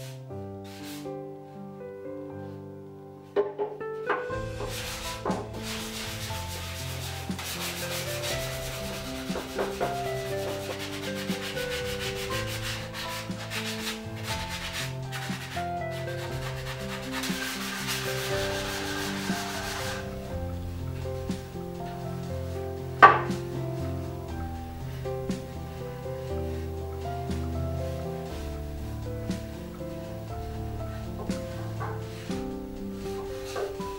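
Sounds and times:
soft background music: 0.0 - 33.9
sanding block scratching wood: 0.7 - 1.1, 4.4 - 24.1, 24.8 - 33.9.

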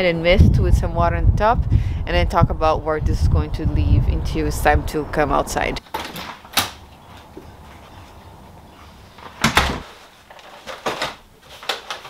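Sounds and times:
low wind rumble: 0.0 - 5.8, 6.7 - 9.8
door thumping shut: 9.3 - 10.0.

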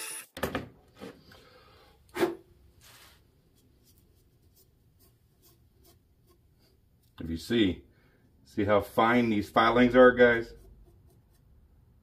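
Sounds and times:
gloved hands rubbing and rustling: 2.8 - 6.6.

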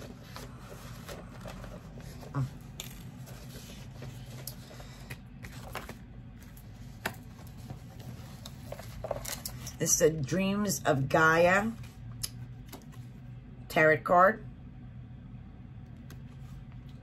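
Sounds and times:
paper and cards rustling: 0.0 - 9.9
low room hum: 0.0 - 17.0.

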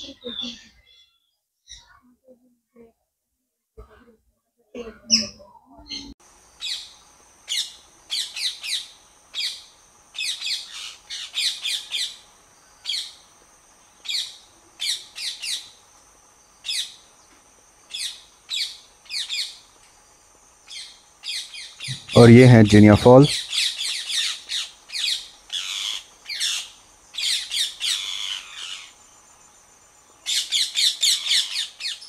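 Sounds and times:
birds chirping: 0.0 - 2.0, 16.5 - 32.0.

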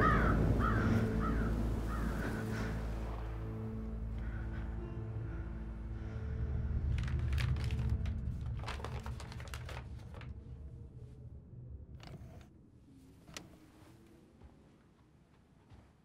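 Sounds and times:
low musical drone: 0.0 - 12.8
paper rustling: 6.8 - 10.4.

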